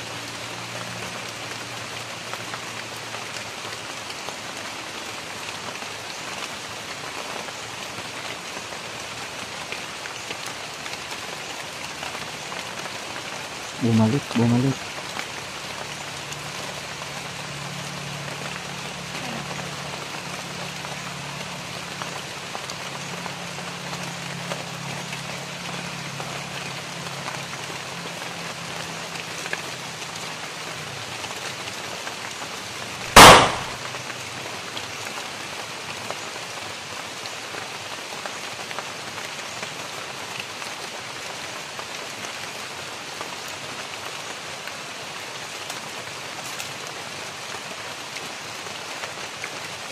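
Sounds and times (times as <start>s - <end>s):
rain falling on foliage: 0.0s - 49.9s
rifle shot: 33.2s - 33.9s.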